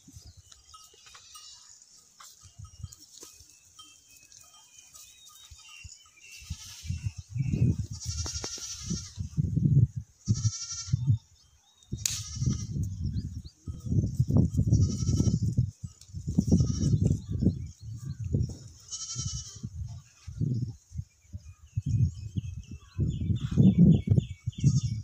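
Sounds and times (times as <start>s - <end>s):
goats bleating: 7.9s - 9.2s, 18.8s - 19.6s.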